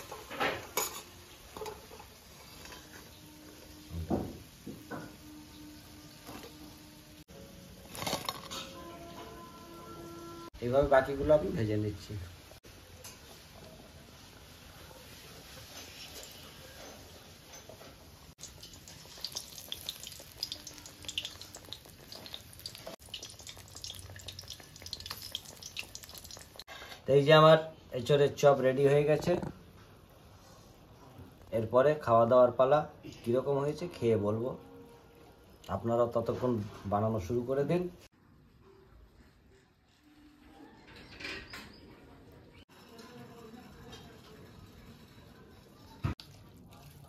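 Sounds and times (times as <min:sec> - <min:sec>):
deep-frying sizzle and pops: 0:15.1 - 0:26.8.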